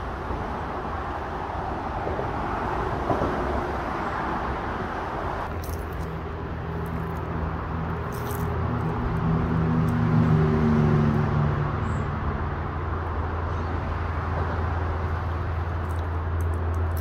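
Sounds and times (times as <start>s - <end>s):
traffic rushing: 0.0s - 17.0s
vehicle engine passing by: 5.6s - 17.0s.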